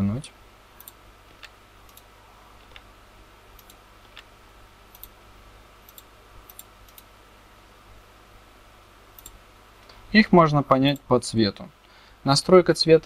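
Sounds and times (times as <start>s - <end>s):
computer mouse clicking: 0.8s - 2.9s, 3.5s - 4.3s, 4.9s - 5.2s, 5.8s - 7.1s, 9.1s - 10.0s.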